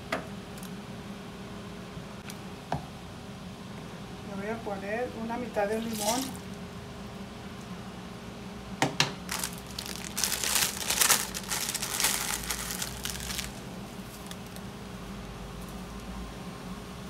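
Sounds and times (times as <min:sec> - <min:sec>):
dry leaves rustling: 0:05.8 - 0:06.5, 0:09.3 - 0:14.6
plastic bag crinkling: 0:05.9 - 0:06.5, 0:09.3 - 0:14.6.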